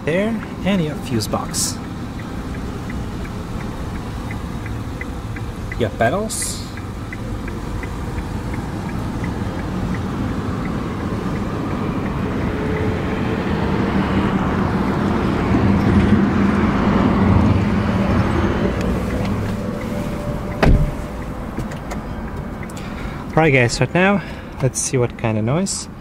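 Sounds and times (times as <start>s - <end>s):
car engine running: 0.0s - 25.3s
rushing car noise: 0.0s - 26.0s.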